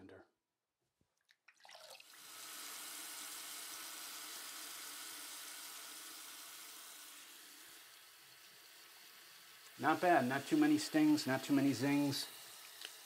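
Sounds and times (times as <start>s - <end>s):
small water splashes: 1.2s - 2.2s
sink tap running: 1.6s - 13.0s.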